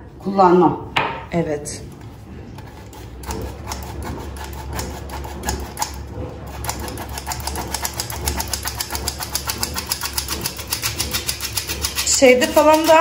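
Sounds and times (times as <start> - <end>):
sieve shaking and tapping: 3.1 - 13.0.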